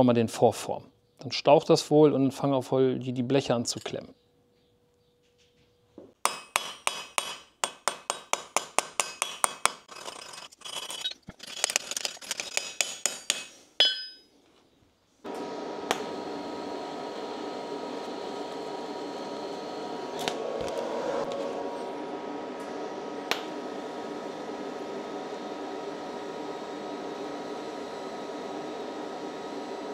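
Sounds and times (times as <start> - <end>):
hammer striking rivet on anvil: 6.2 - 9.8, 12.6 - 14.3
machine whirring: 15.2 - 29.9.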